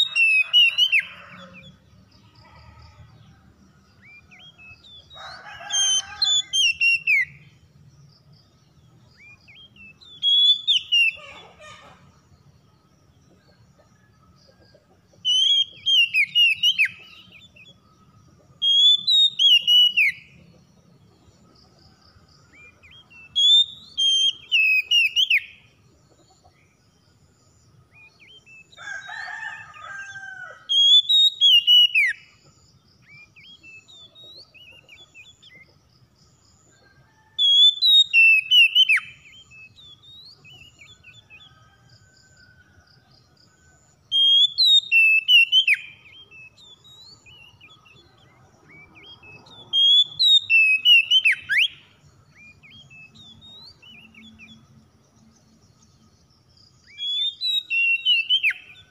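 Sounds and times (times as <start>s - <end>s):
bird singing whistled phrases: 9.6s - 11.3s, 18.6s - 20.2s, 30.8s - 32.2s, 44.2s - 45.8s, 49.7s - 51.8s, 56.9s - 58.8s.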